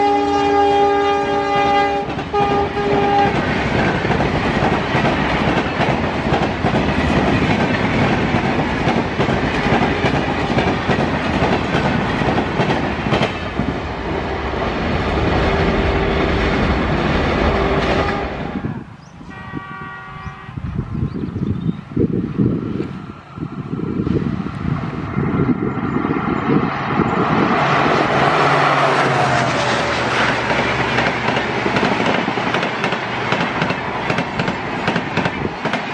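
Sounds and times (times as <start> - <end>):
diesel locomotive horn: 0.0 - 3.6, 15.4 - 20.8, 28.0 - 30.3
train horn: 0.0 - 3.6, 15.4 - 20.8, 28.2 - 30.2
wheels clacking over rail joints: 2.0 - 14.0, 28.1 - 35.9.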